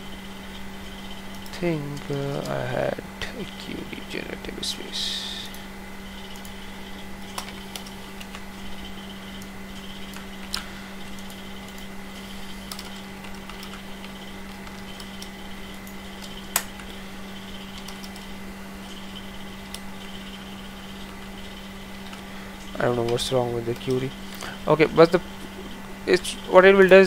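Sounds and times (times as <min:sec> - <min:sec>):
low hum: 0:00.0 - 0:27.0
keyboard and mouse clicks: 0:07.2 - 0:11.9, 0:12.6 - 0:18.3.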